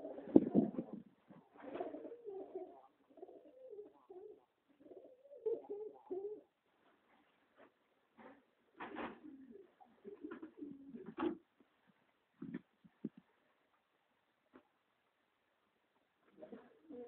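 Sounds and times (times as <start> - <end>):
pigeons cooing: 0.0 - 6.5, 8.9 - 11.4.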